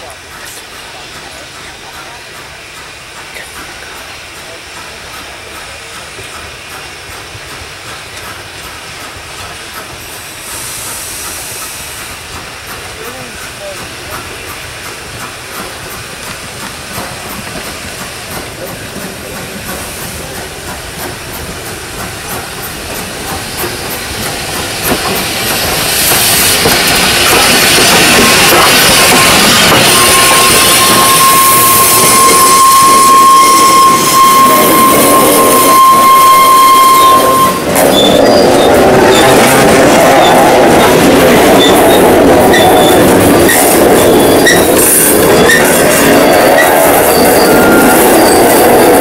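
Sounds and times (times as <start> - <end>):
steam locomotive passing: 0.0 - 49.0
high-pitched squeal: 26.2 - 49.0.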